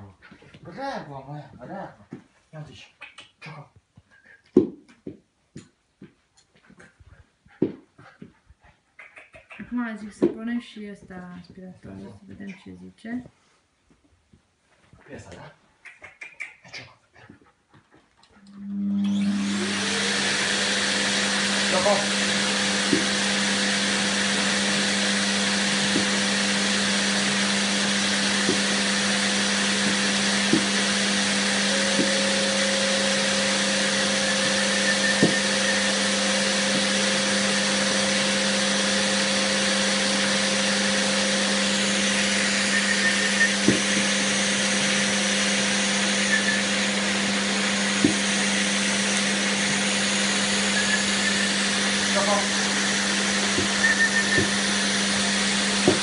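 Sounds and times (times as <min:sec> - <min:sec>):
vacuum cleaner running: 0:18.4 - 0:56.0.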